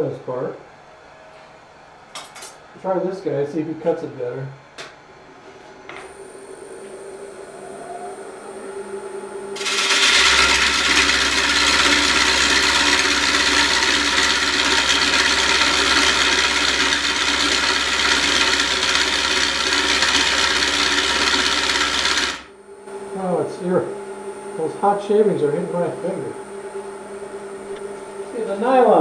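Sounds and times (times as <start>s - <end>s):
wood lathe humming: 9.5s - 22.6s
gouge cutting wood: 9.6s - 22.5s.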